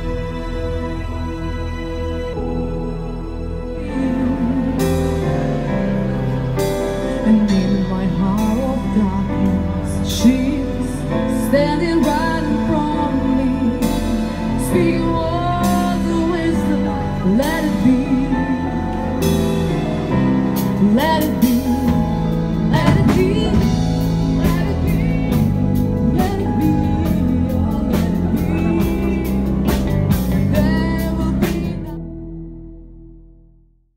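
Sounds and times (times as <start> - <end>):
instrumental accompaniment: 0.0 - 33.7
person singing: 3.4 - 32.3.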